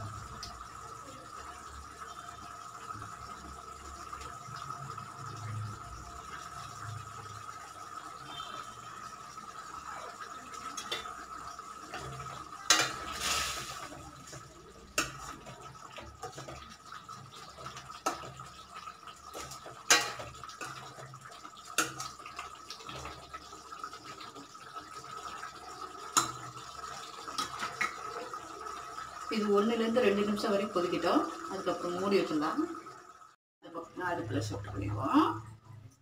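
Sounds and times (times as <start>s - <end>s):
metal ladle scraping pan: 12.7s - 14.4s, 19.4s - 20.8s.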